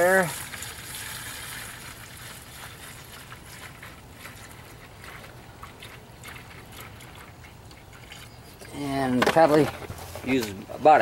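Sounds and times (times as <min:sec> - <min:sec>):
liquid splashing: 0:00.0 - 0:08.8
liquid trickling into plastic tank: 0:00.0 - 0:09.6.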